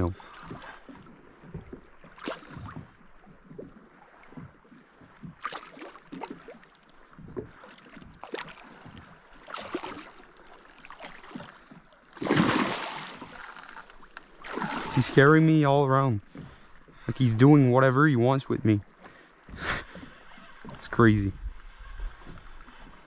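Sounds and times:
water sloshing: 0.0 - 21.0
fish splashing at the surface: 5.4 - 6.6, 12.1 - 15.2.

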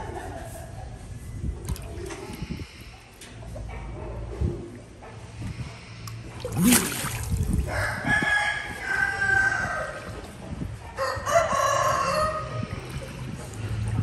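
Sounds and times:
rooster crowing: 7.7 - 10.0, 11.0 - 12.6.

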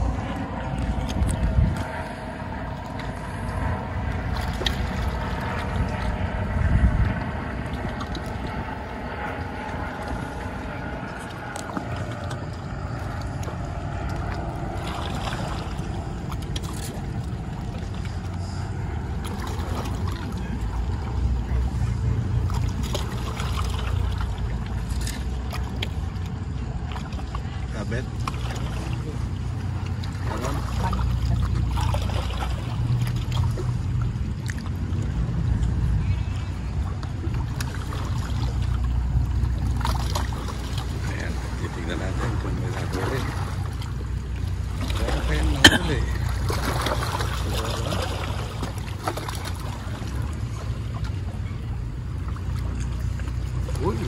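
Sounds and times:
wind on microphone: 0.0 - 25.1
boat engine drone: 0.0 - 54.0.

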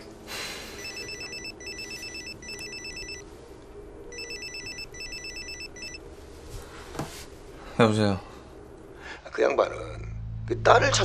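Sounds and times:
mobile phone ringtone trilling: 0.8 - 3.2, 4.1 - 6.0.

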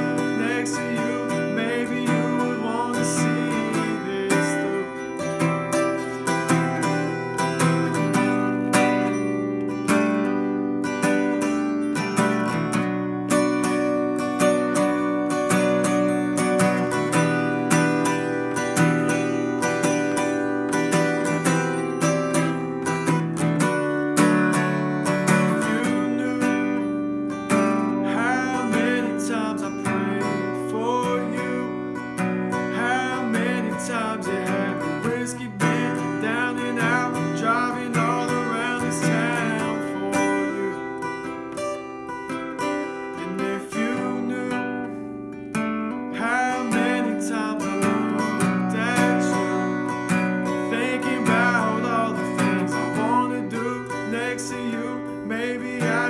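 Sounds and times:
men singing: 0.0 - 5.0, 25.4 - 26.8, 28.0 - 31.7, 32.7 - 40.8, 43.2 - 44.8, 46.2 - 49.7, 50.6 - 56.0
acoustic guitar strumming chords: 0.0 - 56.0.

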